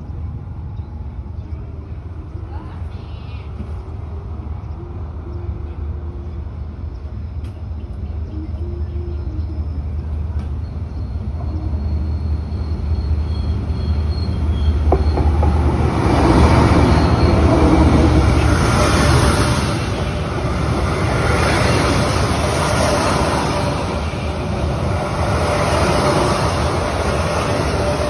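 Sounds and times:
locomotive engine humming: 0:00.0 - 0:28.0
train wheels rolling on rails: 0:09.9 - 0:28.0.

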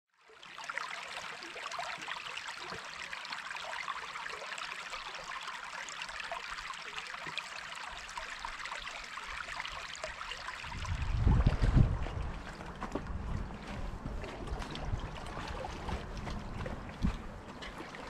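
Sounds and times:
brook trickling over rocks: 0:00.1 - 0:18.0.

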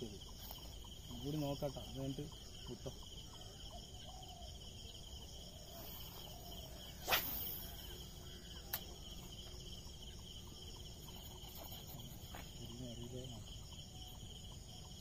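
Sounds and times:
insects chirping trill: 0:00.0 - 0:15.0
brief sharp hiss: 0:07.0 - 0:07.7
faint click: 0:08.7 - 0:08.9.

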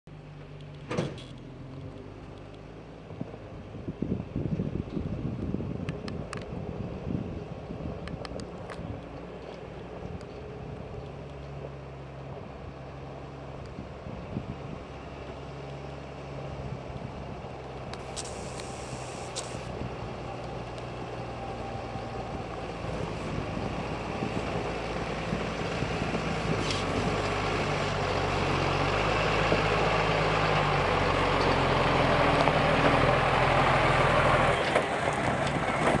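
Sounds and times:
diesel truck engine labouring: 0:08.6 - 0:36.0
brief hiss: 0:18.0 - 0:19.7.

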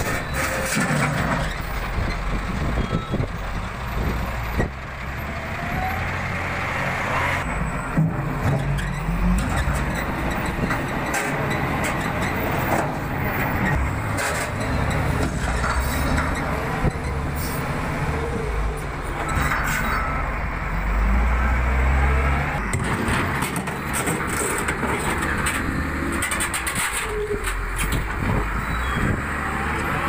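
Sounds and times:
clanks and scrapes of rock: 0:00.0 - 0:01.7, 0:07.9 - 0:13.0, 0:13.6 - 0:17.0, 0:19.2 - 0:20.1, 0:22.7 - 0:28.4
diesel engine under load: 0:00.0 - 0:30.0.

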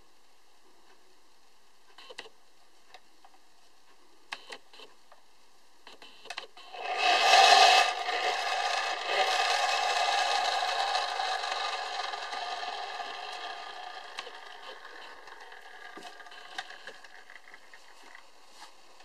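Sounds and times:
friction motor whirring: 0:06.7 - 0:18.2.

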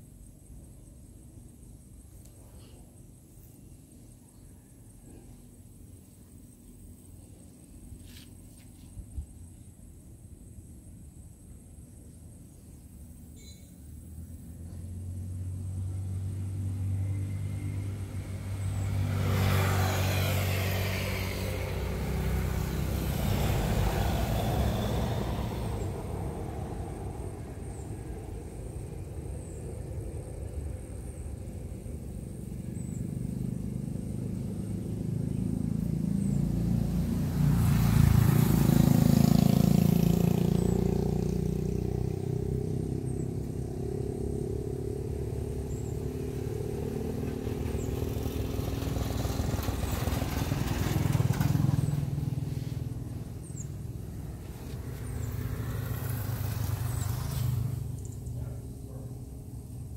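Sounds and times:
vehicles passing on road: 0:12.4 - 0:59.9.

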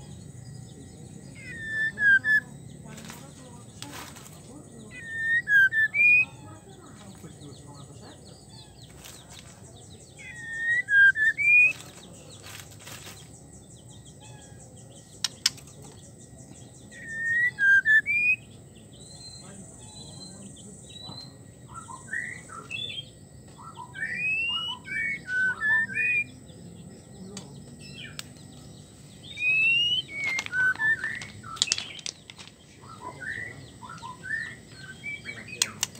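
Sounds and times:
bird whistling: 0:01.3 - 0:02.6, 0:04.8 - 0:06.5, 0:10.2 - 0:11.9, 0:16.9 - 0:26.4, 0:29.2 - 0:32.1, 0:32.8 - 0:35.9.

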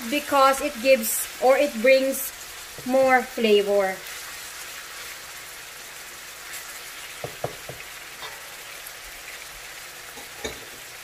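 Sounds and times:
vegetables sizzling in oil: 0:00.0 - 0:11.0
utensil knocking against pan: 0:07.2 - 0:07.9.

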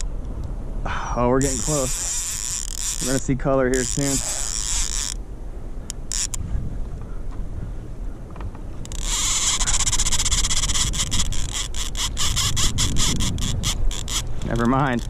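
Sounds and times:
fishing reel clicking: 0:01.4 - 0:05.2, 0:05.9 - 0:06.4, 0:08.8 - 0:15.0.

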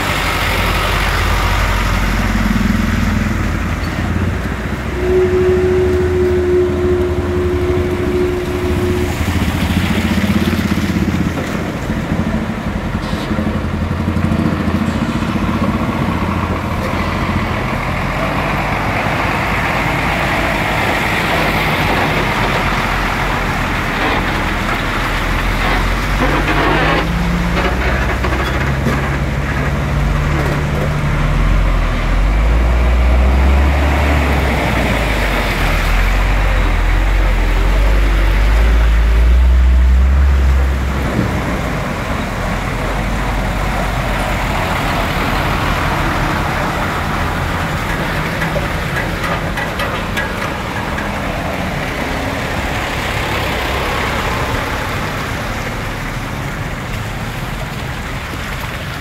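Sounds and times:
tyres churning through water: 0:00.0 - 0:59.0
steady tone: 0:04.1 - 0:10.6.

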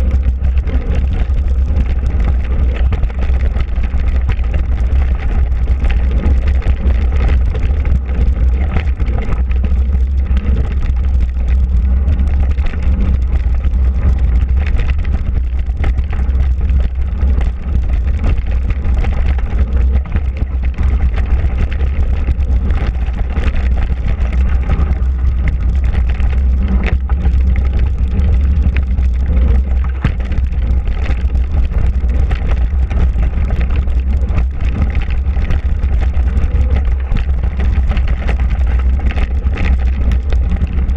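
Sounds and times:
bike rattling over bumps: 0:00.0 - 0:40.9
bike tyres on dirt trail: 0:00.0 - 0:40.9
wind on microphone: 0:00.0 - 0:40.9.

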